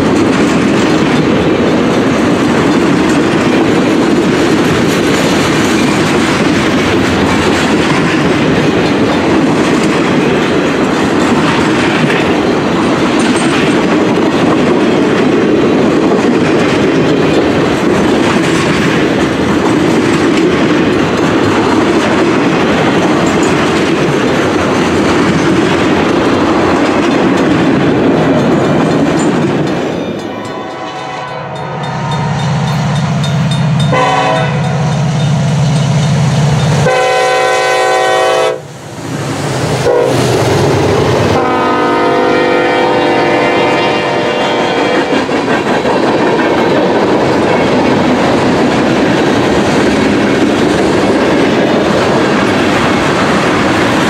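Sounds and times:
train wheels clattering on rails: 0.0 - 54.0
locomotive horn blasts: 30.3 - 32.5, 33.9 - 34.8, 36.8 - 38.7, 39.8 - 40.2, 41.4 - 45.1.

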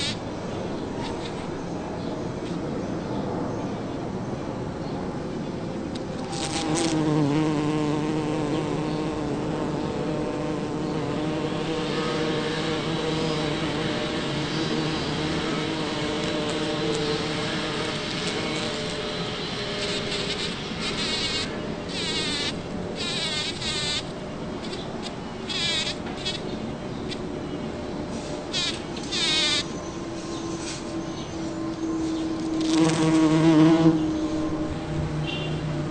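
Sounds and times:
bumblebee buzzing: 0.0 - 0.2, 6.1 - 26.5, 28.4 - 35.9.

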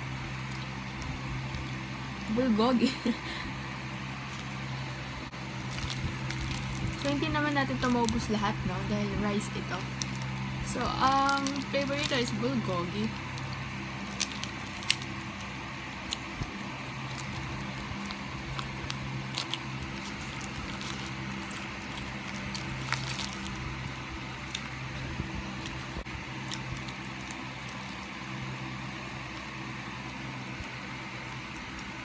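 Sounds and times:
plastic wrapper crackling: 0.0 - 2.3, 4.1 - 32.0
steady low hum: 0.0 - 32.0.

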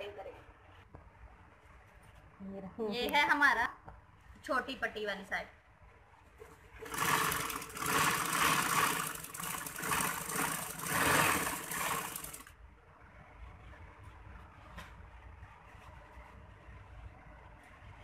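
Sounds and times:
sewing machine stitching: 6.8 - 12.5.

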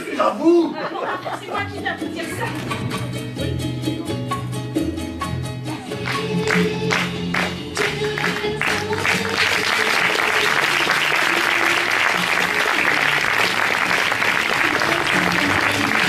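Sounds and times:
music with a beat: 2.8 - 16.0
audience applauding: 6.0 - 16.0.

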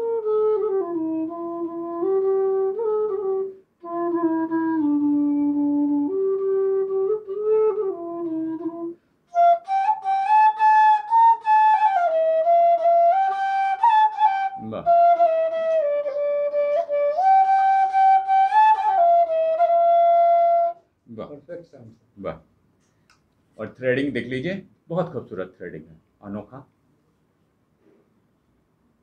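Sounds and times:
bamboo flute melody: 0.0 - 20.9.

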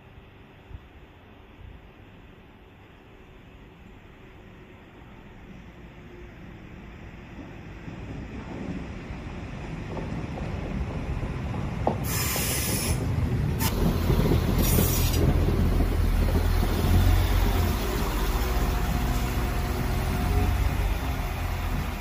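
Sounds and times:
diesel train engines rumbling: 0.0 - 22.0
short air hisses: 12.0 - 13.8, 14.6 - 15.2.

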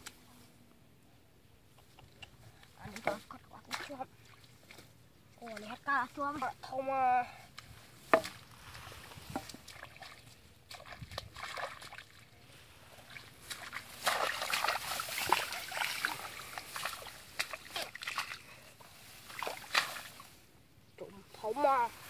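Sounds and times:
splashing in muddy water: 2.1 - 6.7, 8.1 - 20.4
grass rustling: 2.8 - 20.6, 21.2 - 22.0.

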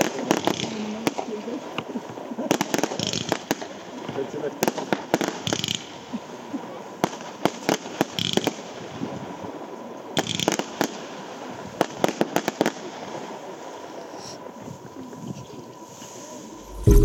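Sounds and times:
fireworks bangs: 16.6 - 17.0.

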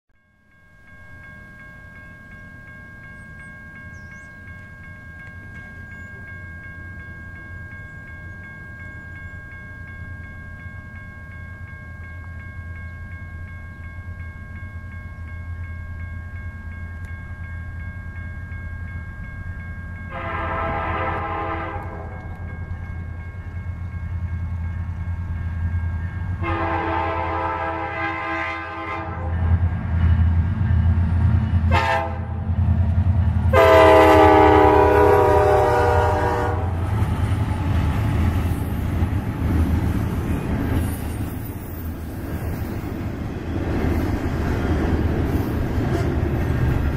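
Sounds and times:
diesel locomotive rumble: 18.4 - 46.9
locomotive air horn: 20.1 - 22.3, 26.4 - 29.4, 31.7 - 32.5, 33.5 - 36.8.

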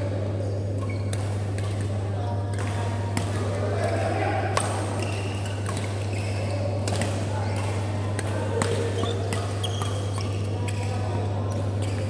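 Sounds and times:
shoes squeaking on court: 0.4 - 1.6, 5.0 - 6.8, 8.8 - 11.0
racket hitting shuttlecock: 0.8 - 11.0.

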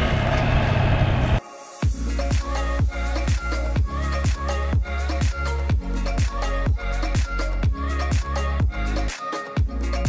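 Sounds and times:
motorcycle riding: 0.0 - 1.4
electronic dance music: 1.4 - 10.0.

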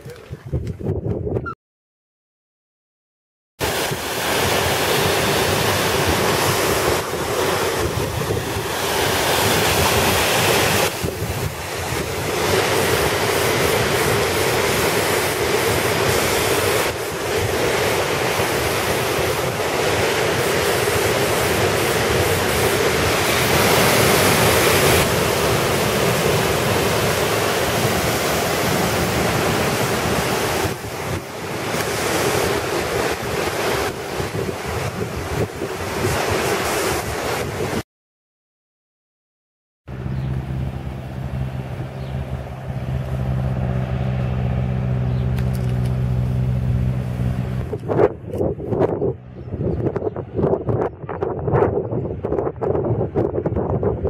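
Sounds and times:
wind on microphone: 0.0 - 1.6, 3.6 - 37.8, 39.9 - 54.0
waterfall rushing: 3.6 - 37.8.

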